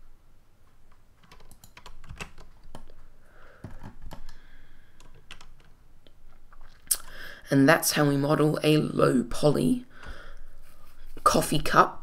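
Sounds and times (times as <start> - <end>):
computer keyboard clicks: 0.9 - 3.0, 5.0 - 5.8.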